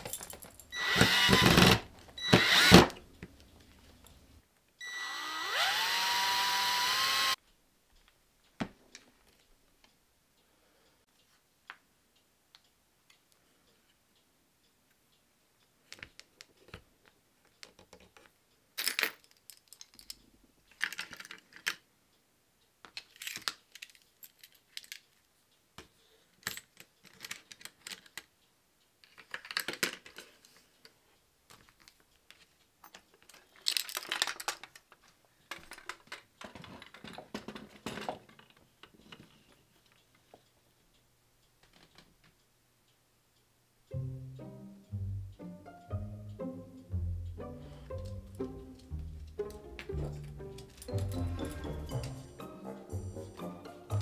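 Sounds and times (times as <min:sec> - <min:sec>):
keys clinking and jangling: 0:00.0 - 0:00.8, 0:23.1 - 0:25.0, 0:49.9 - 0:52.3.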